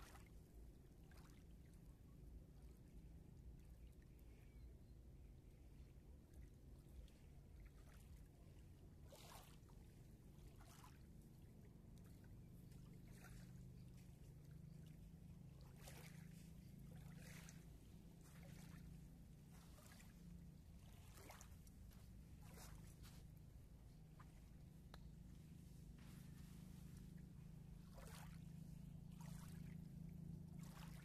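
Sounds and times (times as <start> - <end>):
faint water splash: 0.0 - 0.4, 9.0 - 9.8, 10.4 - 11.4, 14.8 - 20.2, 20.8 - 23.4, 24.1 - 29.8, 30.5 - 31.0
ripples lapping at water's edge: 0.0 - 1.8, 5.8 - 31.0
low steady hum: 0.0 - 31.0.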